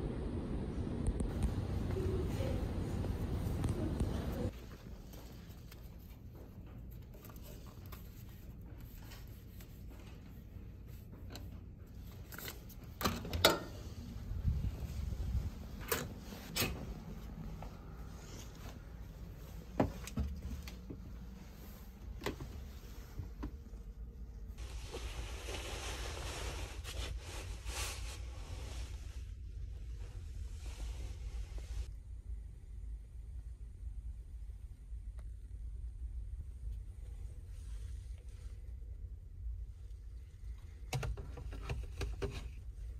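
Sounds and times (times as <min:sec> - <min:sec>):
steady low rumble: 0:00.0 - 0:07.3, 0:13.7 - 0:26.1, 0:27.2 - 0:40.8.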